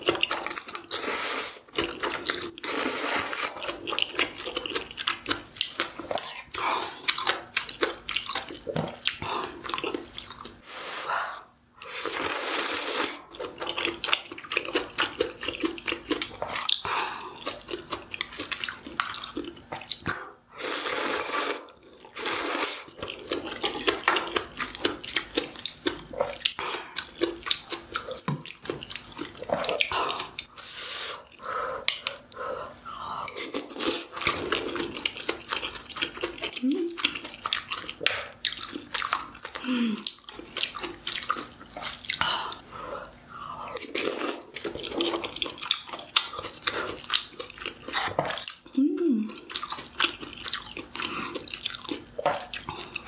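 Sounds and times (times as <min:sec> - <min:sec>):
slurping: 0:00.2 - 0:04.3, 0:11.8 - 0:13.3, 0:18.4 - 0:24.1
chewing and biting: 0:03.4 - 0:10.6, 0:22.9 - 0:30.5, 0:33.3 - 0:42.3, 0:43.8 - 0:48.7, 0:49.4 - 0:53.0.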